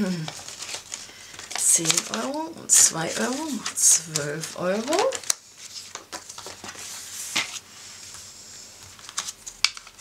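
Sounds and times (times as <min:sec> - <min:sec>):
paper rustling: 0:00.1 - 0:10.0.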